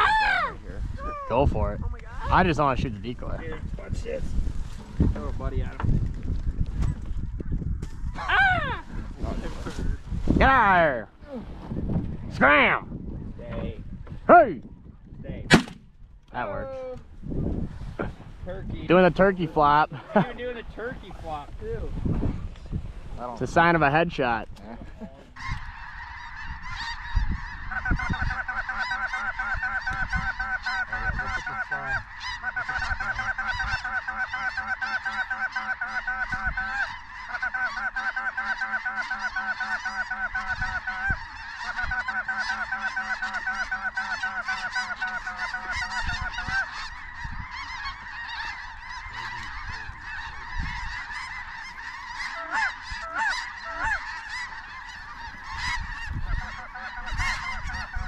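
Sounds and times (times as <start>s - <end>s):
flock of geese honking: 0.0s - 0.5s, 24.8s - 58.0s
close rapid goose honks: 25.4s - 58.0s.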